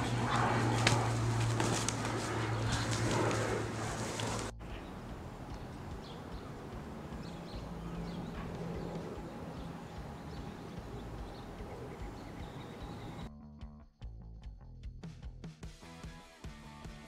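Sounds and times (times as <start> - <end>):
low rumble: 0.0 - 13.3.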